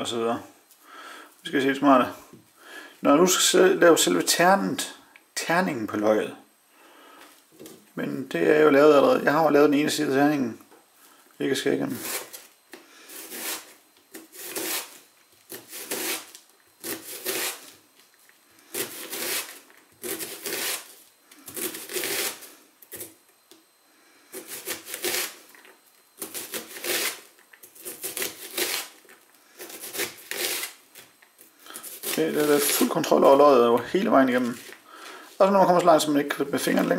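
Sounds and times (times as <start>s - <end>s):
knife slicing onion on board: 13.1s - 17.6s.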